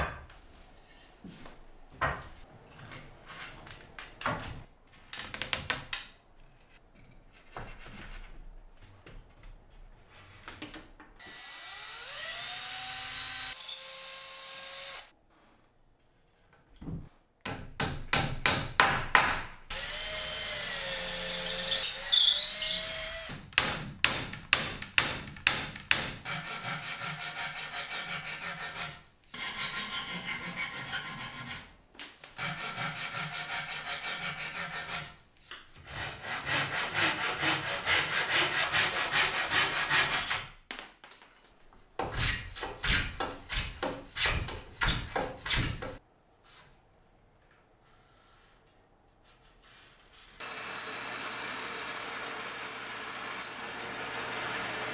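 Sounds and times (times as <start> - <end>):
drill running: 11.2 - 15.1, 50.4 - 54.9
hand saw cutting wood: 26.2 - 31.7, 32.4 - 35.2, 35.8 - 40.5, 50.4 - 54.9.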